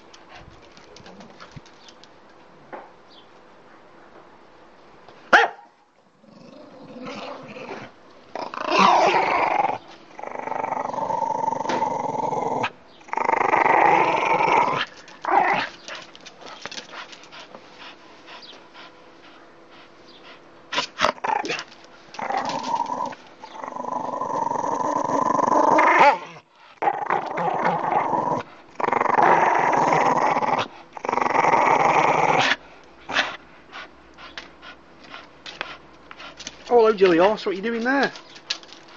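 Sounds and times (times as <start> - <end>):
dog growling in play: 6.2 - 15.8, 20.7 - 33.3.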